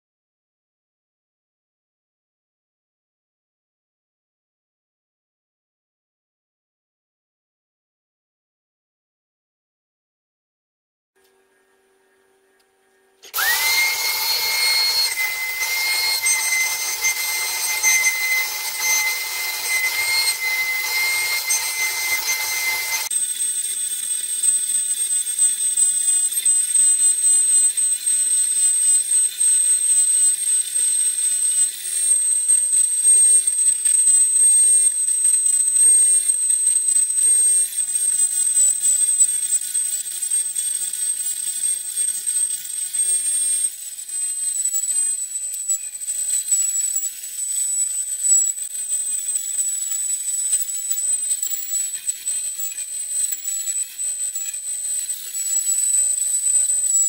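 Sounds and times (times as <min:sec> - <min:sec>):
router spindle whine: 0:11.2 - 0:57.0
steady cutting hiss: 0:13.2 - 0:27.9.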